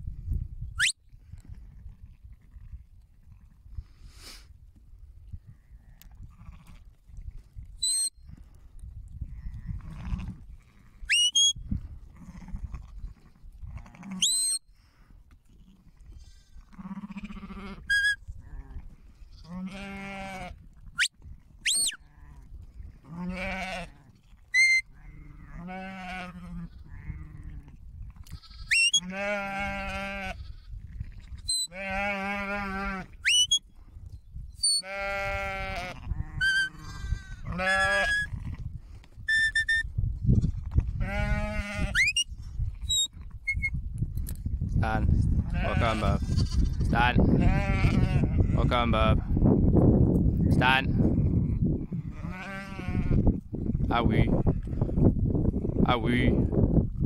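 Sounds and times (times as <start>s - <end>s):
sheep bleating: 12.2s - 14.5s, 15.6s - 20.6s, 23.1s - 30.7s, 31.4s - 33.2s, 34.7s - 38.6s, 41.0s - 42.1s, 45.5s - 48.9s, 51.9s - 53.3s.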